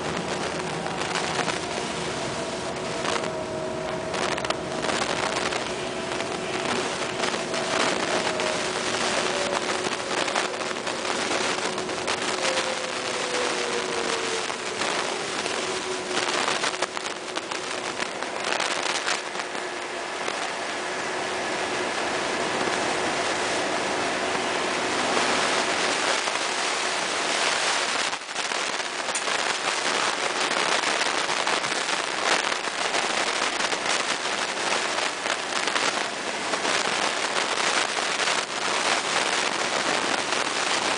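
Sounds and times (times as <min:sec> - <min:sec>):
microphone crackling: 0:00.0 - 0:20.6
diesel engine running: 0:00.0 - 0:40.9
electric bus whine: 0:00.0 - 0:40.9.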